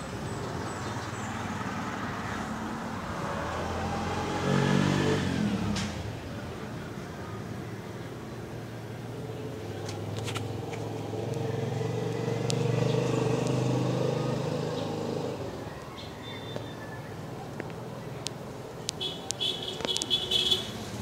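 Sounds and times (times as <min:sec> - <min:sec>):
vehicle engine passing by: 0:00.0 - 0:06.5, 0:08.8 - 0:15.8.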